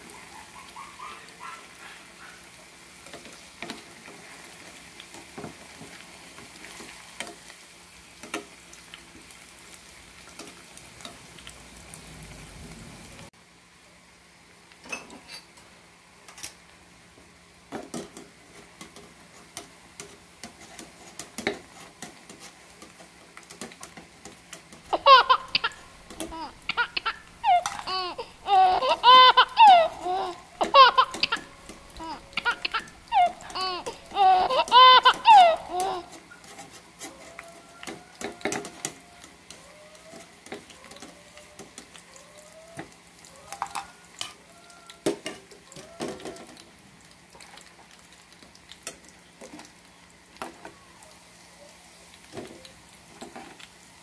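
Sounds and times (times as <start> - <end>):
tofu sizzling in oil: 0.0 - 54.0
loud high wavering calls: 24.9 - 36.1.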